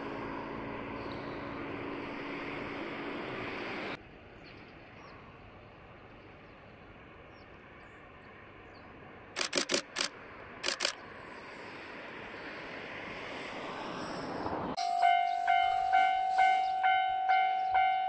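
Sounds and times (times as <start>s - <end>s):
distant train rumble: 0.0s - 18.0s
camera shutter clicks: 9.4s - 11.0s.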